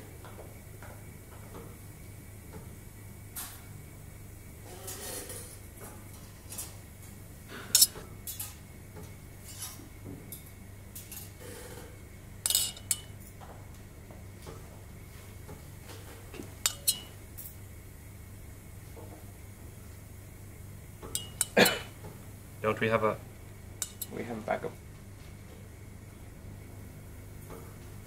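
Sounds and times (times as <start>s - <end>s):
low steady hum: 7.2s - 8.2s, 12.0s - 15.6s, 16.4s - 28.0s
metal instruments clinking on bowl: 7.8s - 8.0s, 12.5s - 13.1s, 16.7s - 17.1s, 21.2s - 21.6s, 23.8s - 24.2s.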